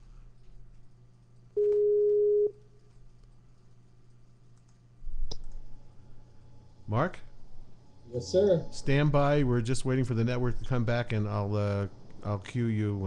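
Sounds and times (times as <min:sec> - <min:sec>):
telephone line beep: 0:01.6 - 0:02.5.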